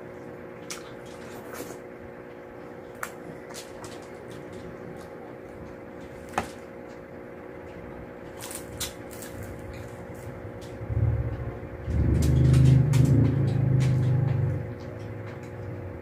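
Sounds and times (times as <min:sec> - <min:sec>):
steady low hum: 0:00.0 - 0:16.0
fried fish crackling torn apart: 0:08.3 - 0:10.0.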